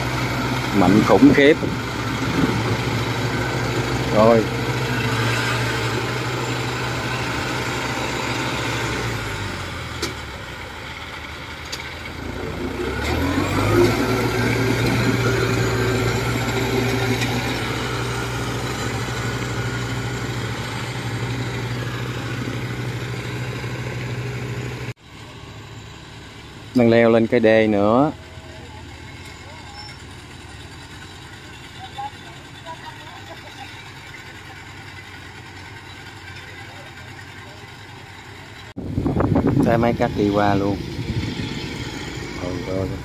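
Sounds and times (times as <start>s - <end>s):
crawler cart engine running: 0.0s - 43.0s.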